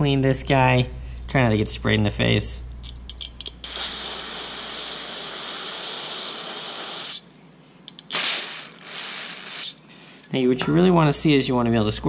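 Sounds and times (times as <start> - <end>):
aerosol spray hiss: 3.7 - 7.3, 8.1 - 9.8.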